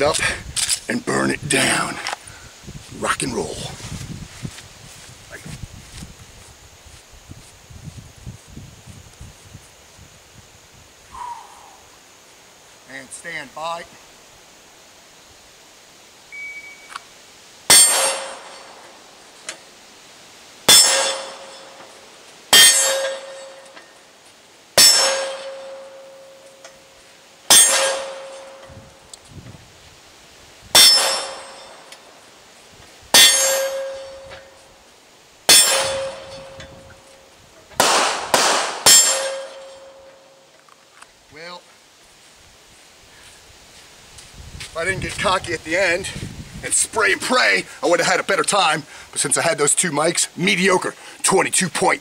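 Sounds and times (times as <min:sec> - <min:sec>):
shot timer beep: 0:16.4 - 0:16.9
steel target ringing: 0:17.7 - 0:18.8, 0:20.7 - 0:21.8, 0:22.5 - 0:23.8, 0:24.8 - 0:26.6, 0:27.5 - 0:28.7, 0:30.8 - 0:31.9, 0:33.2 - 0:34.6, 0:35.5 - 0:37.1, 0:37.8 - 0:40.4
pistol shots: 0:37.8 - 0:39.4.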